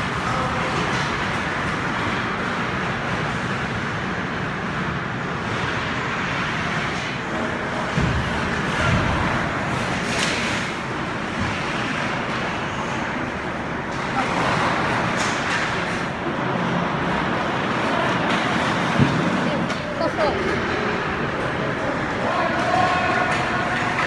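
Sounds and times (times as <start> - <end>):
skates on ice: 5.4 - 24.0.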